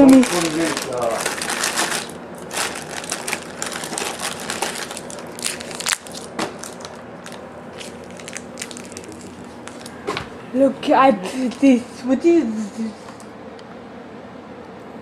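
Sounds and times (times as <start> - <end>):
plastic wrappers crinkling: 0.0 - 10.0.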